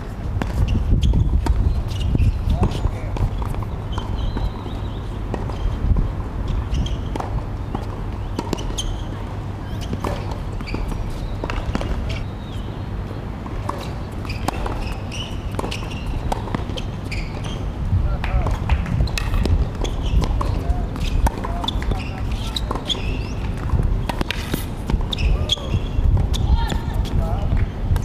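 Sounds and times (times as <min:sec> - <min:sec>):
tennis ball bouncing: 0:00.4 - 0:04.7, 0:07.0 - 0:09.0, 0:09.8 - 0:12.2, 0:13.4 - 0:17.6, 0:18.2 - 0:28.0
players' footsteps: 0:13.4 - 0:28.0.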